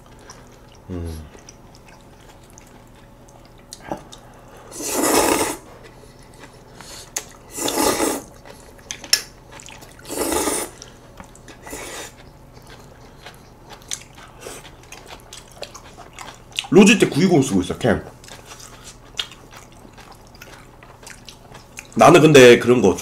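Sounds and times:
quiet chewing: 0:00.0 - 0:22.0
noodles slurped loudly: 0:04.8 - 0:05.6, 0:07.6 - 0:08.3.

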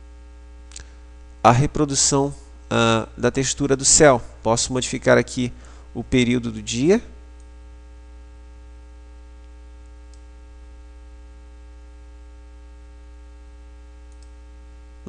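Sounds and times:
electrical mains hum: 0:00.0 - 0:15.0
faint click: 0:09.4 - 0:10.3, 0:14.1 - 0:14.4.

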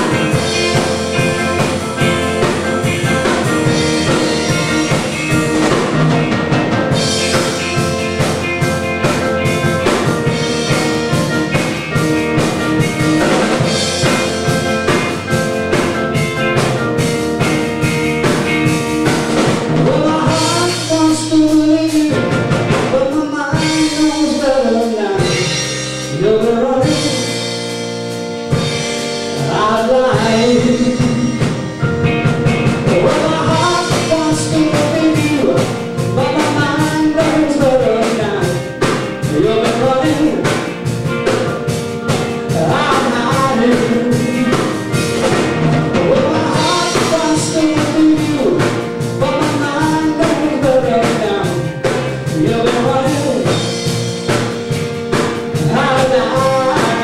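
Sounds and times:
drum kit: 0:00.0 - 0:57.0
electric bass: 0:00.0 - 0:57.0
electric guitar: 0:00.0 - 0:57.0
keyboard: 0:00.0 - 0:57.0
lead vocals with harmony: 0:19.7 - 0:27.5, 0:29.4 - 0:40.8, 0:42.4 - 0:53.8, 0:55.4 - 0:57.0.

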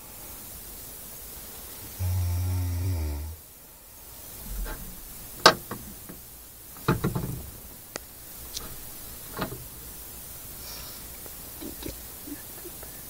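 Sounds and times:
metal window catch rattling: 0:05.4 - 0:06.2, 0:06.8 - 0:07.6, 0:08.6 - 0:09.7.

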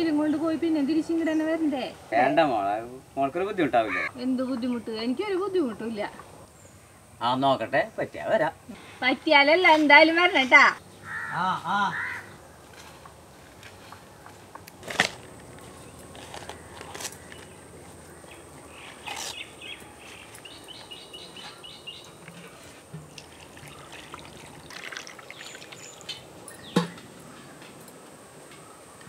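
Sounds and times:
bird chirping: 0:15.8 - 0:22.4, 0:25.2 - 0:27.7
water splashing and trickling: 0:22.0 - 0:26.8
sharp knocks of clay pot: 0:26.7 - 0:27.0.

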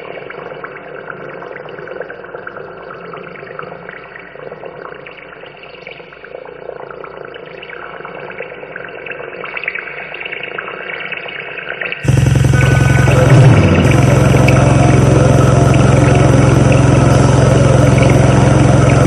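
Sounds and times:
muffled crackling noise music: 0:12.0 - 0:19.0.

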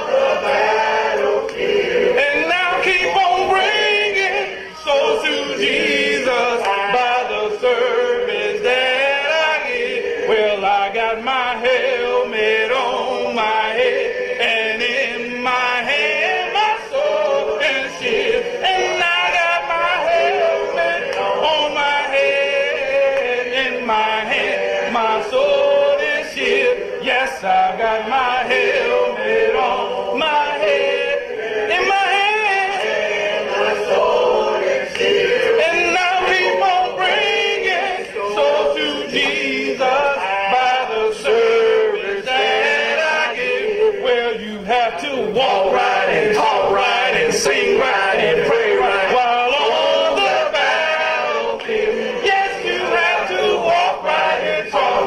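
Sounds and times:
congregation singing a hymn: 0:00.0 - 0:55.0
man singing: 0:02.2 - 0:13.8, 0:14.4 - 0:28.5, 0:35.5 - 0:39.1.

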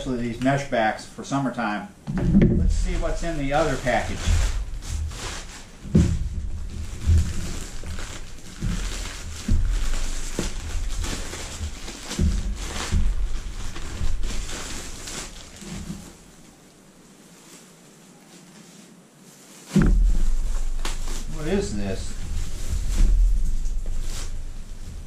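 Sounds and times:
handling bumps: 0:02.0 - 0:16.2, 0:19.7 - 0:25.0
plastic bag crinkling and tearing: 0:02.7 - 0:25.0.

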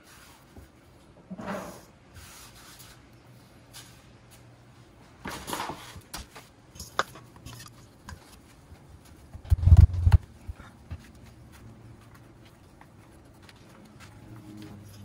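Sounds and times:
rustle and scrape: 0:00.0 - 0:04.5.

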